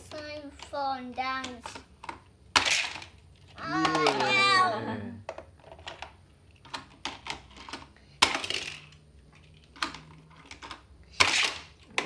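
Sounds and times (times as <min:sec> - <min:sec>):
toy cars clicking and tapping: 0:00.1 - 0:03.2, 0:05.6 - 0:12.0.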